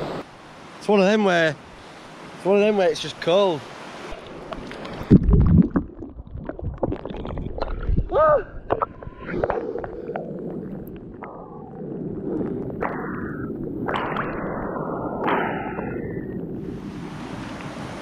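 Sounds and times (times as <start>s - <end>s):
river water sloshing: 3.6s - 8.0s
muffled underwater rush: 3.8s - 18.0s.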